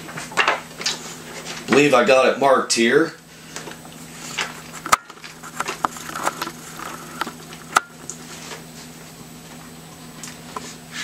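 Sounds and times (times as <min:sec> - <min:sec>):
faint steady hum: 0:00.0 - 0:11.0
paper pages rustling: 0:04.2 - 0:08.6.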